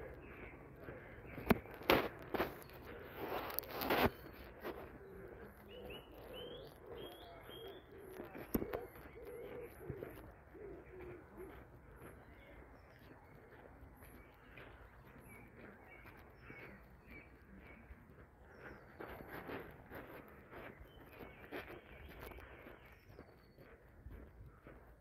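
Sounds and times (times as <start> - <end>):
footsteps on dirt path: 0.0 - 25.0
small birds chirping: 0.0 - 25.0
pigeon cooing: 3.3 - 12.4.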